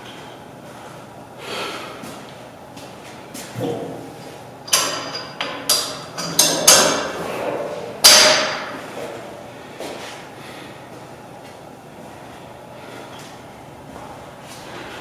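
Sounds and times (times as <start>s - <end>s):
metallic clanks of gym equipment: 4.7s - 8.7s.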